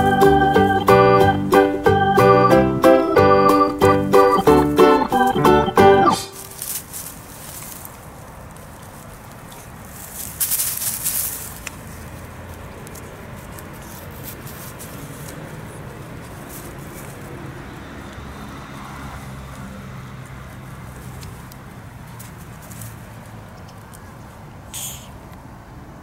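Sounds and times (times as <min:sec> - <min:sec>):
dry grass rustling and crackling: 0:06.2 - 0:24.4.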